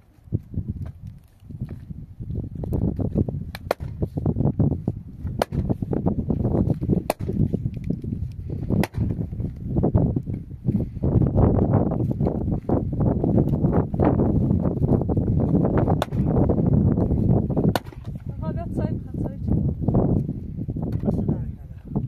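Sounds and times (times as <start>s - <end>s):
pickaxe striking stony ground: 2.6s - 4.0s, 5.2s - 8.1s, 8.7s - 9.3s, 15.7s - 16.5s, 17.6s - 18.2s.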